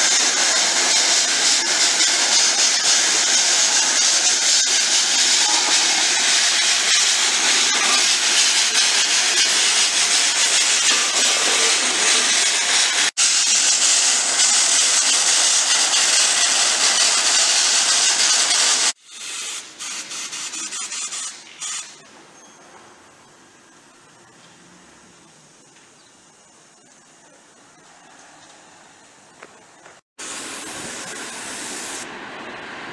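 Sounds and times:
paint spray gun hissing: 0:00.0 - 0:22.0, 0:30.2 - 0:32.1.

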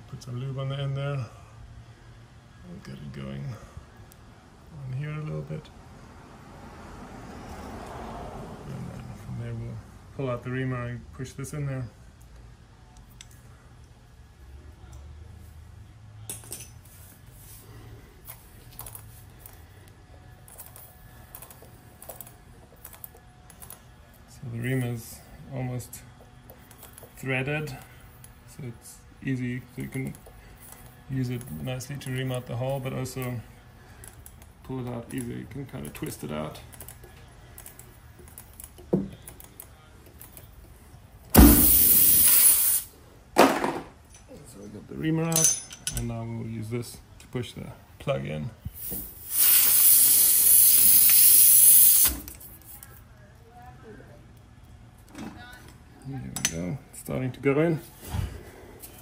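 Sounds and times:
air hissing out of a tyre: 0:41.4 - 0:43.0, 0:48.7 - 0:52.5.

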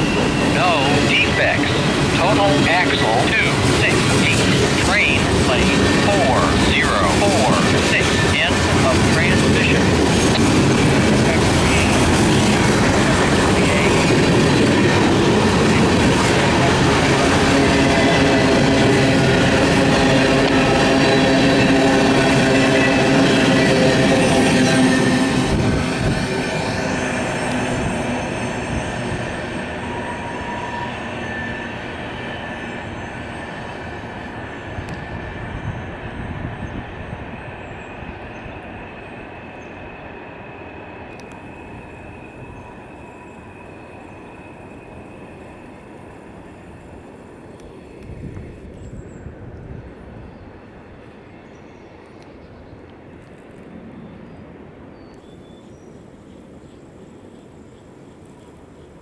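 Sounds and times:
high wheel squeal: 0:00.0 - 0:03.2, 0:19.1 - 0:45.8
freight train rumbling: 0:00.0 - 0:59.0.

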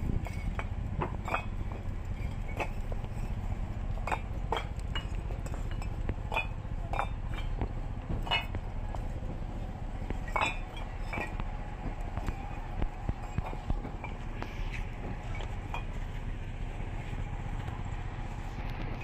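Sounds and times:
steady low rumble: 0:00.0 - 0:19.0
bricks clinking together: 0:00.2 - 0:03.4, 0:04.0 - 0:09.1, 0:10.2 - 0:12.4.

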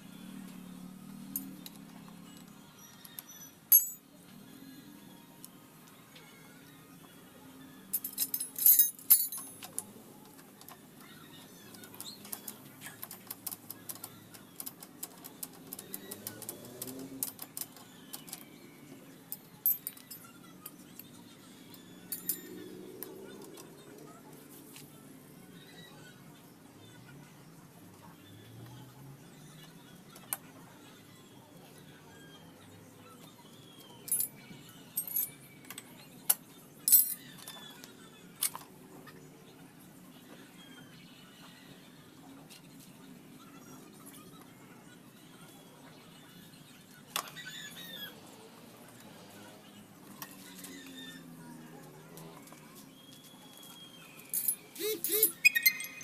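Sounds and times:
metallic clinks and rattles: 0:01.3 - 0:04.0, 0:07.9 - 0:09.8, 0:19.3 - 0:20.8, 0:22.0 - 0:22.6, 0:34.0 - 0:35.4, 0:36.8 - 0:37.6, 0:54.2 - 0:56.0.

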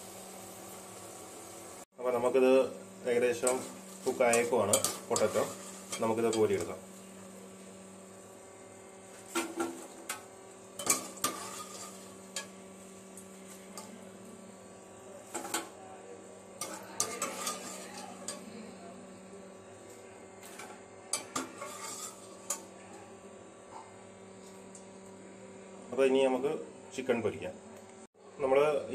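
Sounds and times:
wire skimmer clinking on metal pot: 0:03.4 - 0:06.8, 0:09.3 - 0:14.0, 0:16.6 - 0:18.5.

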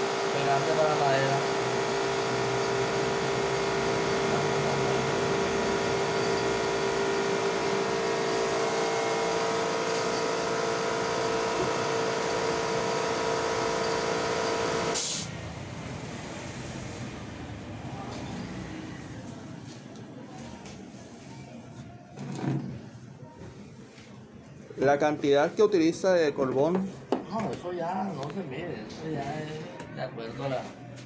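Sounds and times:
machine motor humming and whining: 0:00.0 - 0:15.0.

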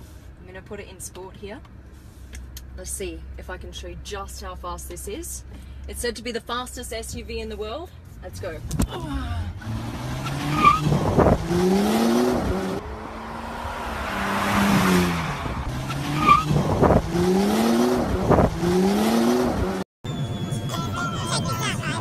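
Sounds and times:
road and wind noise: 0:00.0 - 0:22.0
car engine accelerating: 0:08.4 - 0:20.6.

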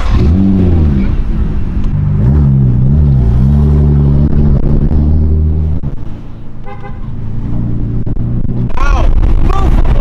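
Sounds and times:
car engines droning: 0:00.0 - 0:10.0
car horn toot: 0:06.6 - 0:07.1.

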